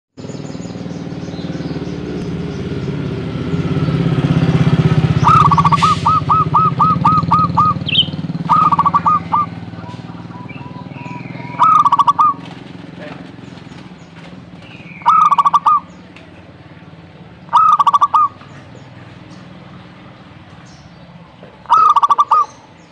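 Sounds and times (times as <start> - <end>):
high bird chirp: 0.2 - 19.9, 20.5 - 22.9
low engine rumble: 0.2 - 22.9
dove cooing in staccato runs: 5.2 - 16.2.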